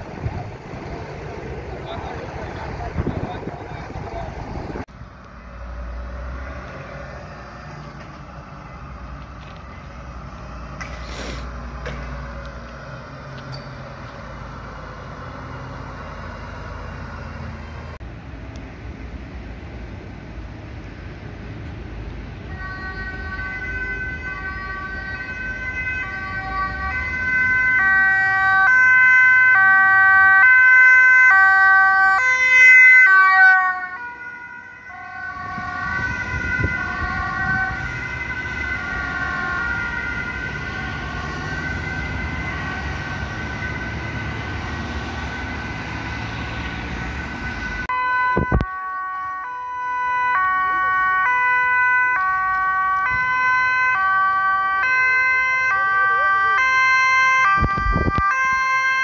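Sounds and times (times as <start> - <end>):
steady siren tone: 0.0 - 6.1, 22.4 - 59.0
two-tone emergency sirens: 0.0 - 18.0, 21.9 - 59.0.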